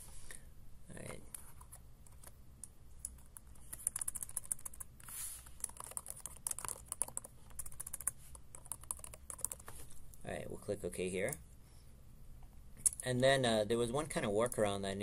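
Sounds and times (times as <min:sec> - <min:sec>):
typing on computer keyboard: 0:03.0 - 0:04.9, 0:05.6 - 0:09.8.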